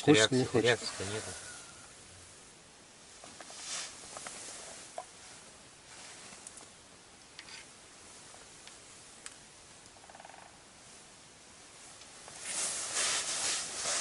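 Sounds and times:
faint steady hiss: 0:00.0 - 0:14.0
soft rustling of hands: 0:03.1 - 0:06.8, 0:11.8 - 0:14.0.

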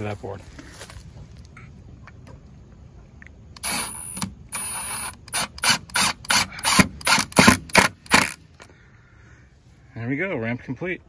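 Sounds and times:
impact driver driving screw into wood: 0:03.6 - 0:08.4.

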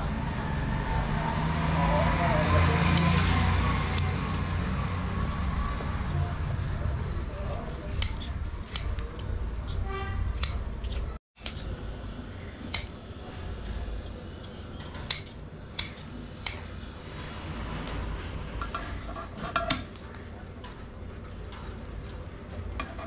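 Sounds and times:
scissors snipping leather: 0:03.8 - 0:04.2, 0:07.5 - 0:09.8, 0:10.4 - 0:10.7, 0:15.0 - 0:16.7.

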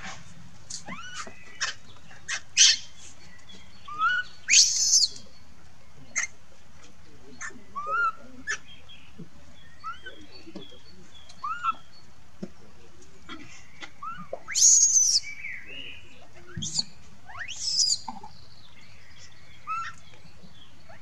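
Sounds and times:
baby monkey crying: 0:00.7 - 0:02.8, 0:03.9 - 0:05.2, 0:11.4 - 0:11.8, 0:13.8 - 0:15.2, 0:16.6 - 0:18.3, 0:19.6 - 0:20.0.

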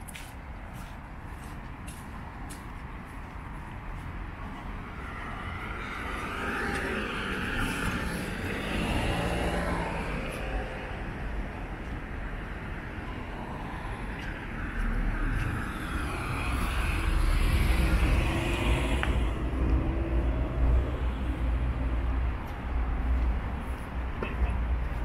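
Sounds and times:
low rumble of traffic: 0:00.0 - 0:25.0
car passing: 0:04.2 - 0:23.7.

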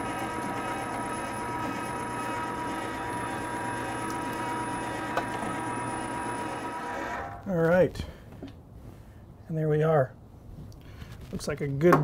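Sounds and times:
electric meat grinder running: 0:00.0 - 0:07.4.

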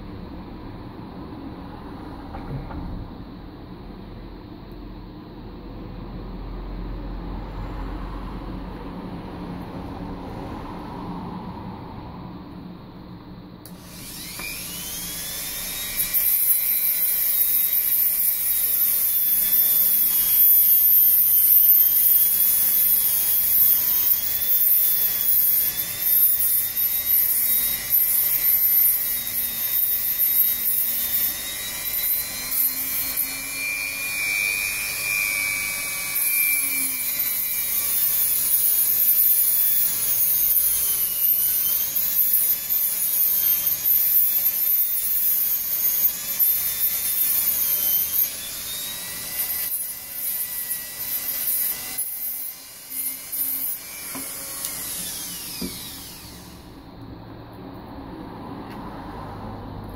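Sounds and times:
rotary tool whining: 0:13.6 - 0:57.1
bit grinding on metal: 0:13.7 - 0:56.7.

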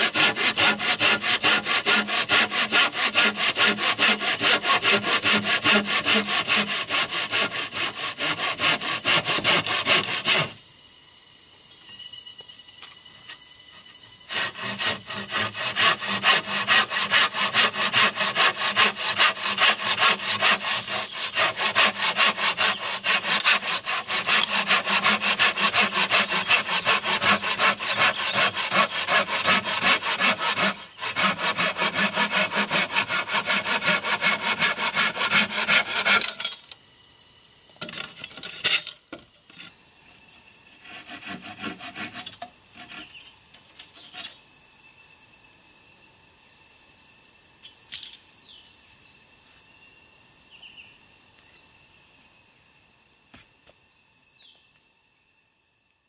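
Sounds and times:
hand saw cutting wood: 0:00.0 - 0:10.6, 0:14.3 - 0:36.6, 0:40.8 - 0:43.2.

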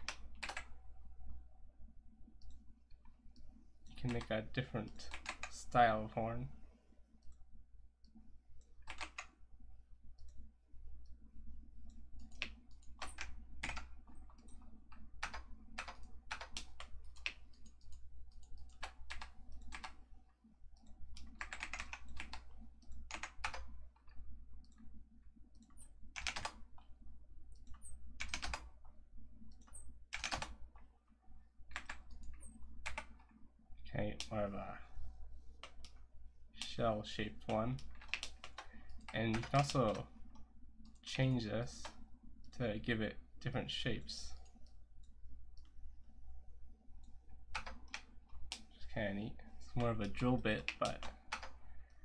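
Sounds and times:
keyboard and mouse clicking: 0:00.0 - 0:00.8, 0:02.4 - 0:05.6, 0:08.0 - 0:09.4, 0:11.8 - 0:20.0, 0:20.7 - 0:24.9, 0:25.5 - 0:26.9, 0:27.5 - 0:30.9, 0:31.7 - 0:33.4, 0:35.6 - 0:36.0, 0:37.4 - 0:41.0, 0:47.0 - 0:48.8, 0:49.8 - 0:52.0
faint low hum: 0:00.0 - 0:52.0.

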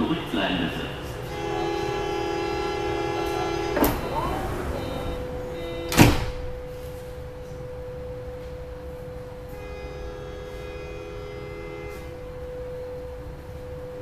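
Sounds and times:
departure call: 0:00.0 - 0:06.8
train hum: 0:00.0 - 0:14.0
train doors slamming shut: 0:01.7 - 0:07.0.

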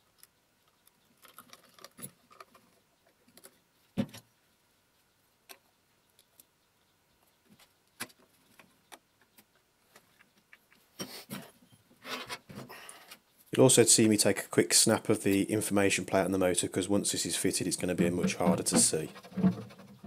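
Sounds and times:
small metal parts clicking: 0:00.1 - 0:02.6.

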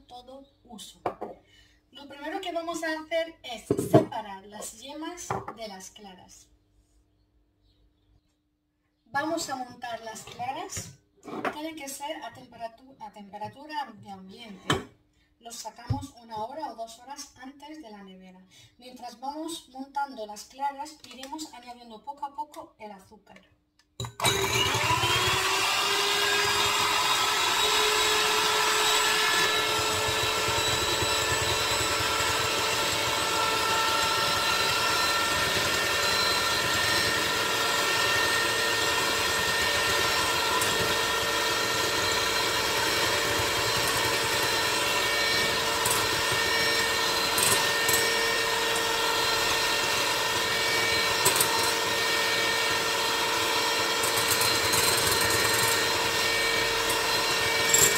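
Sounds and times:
electric hand mixer whine: 0:24.0 - 0:57.9.

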